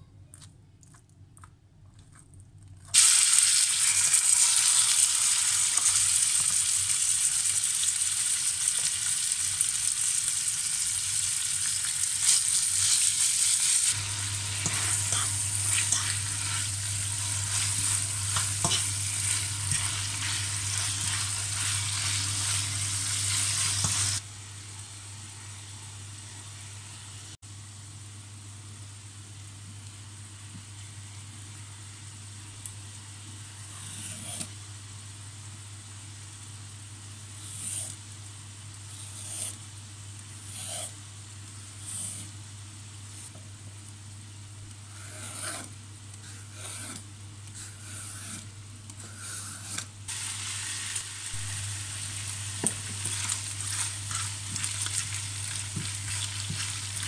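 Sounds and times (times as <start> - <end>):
peeler scraping a carrot: 33.7 - 34.5, 37.4 - 38.0, 38.9 - 39.6, 40.4 - 41.0, 41.8 - 42.3, 44.9 - 49.9
steady hiss: 50.1 - 57.0.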